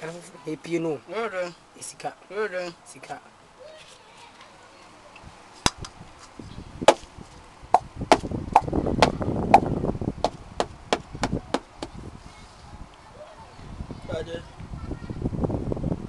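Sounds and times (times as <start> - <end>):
gourd being knocked: 7.8 - 8.7, 9.6 - 12.0.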